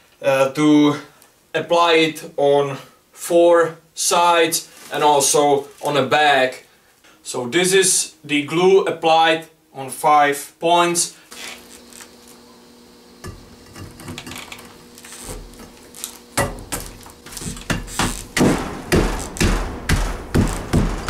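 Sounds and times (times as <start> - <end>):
handling noise: 11.3 - 21.0.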